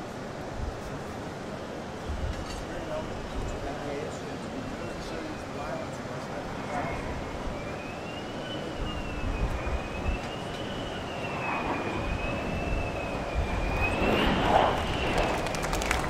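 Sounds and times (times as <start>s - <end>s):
jet engine rumble: 0.0s - 16.0s
jet engine whine: 0.0s - 16.0s.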